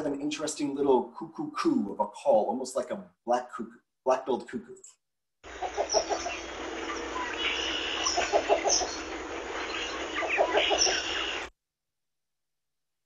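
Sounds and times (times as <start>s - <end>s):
bird low rapid cooing: 5.6s - 6.4s, 7.5s - 9.1s, 10.0s - 11.5s
faint higher bird chirps: 5.6s - 11.5s.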